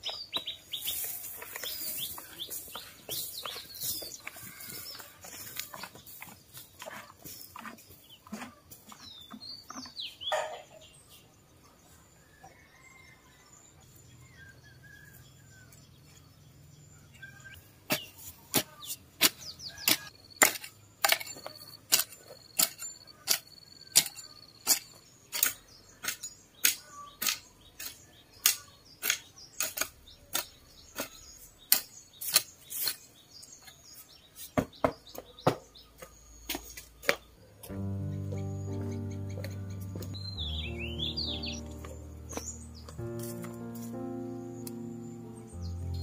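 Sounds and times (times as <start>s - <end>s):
birds chirping faintly: 0.0s - 46.0s
hoe chopping into stony soil: 17.9s - 33.1s.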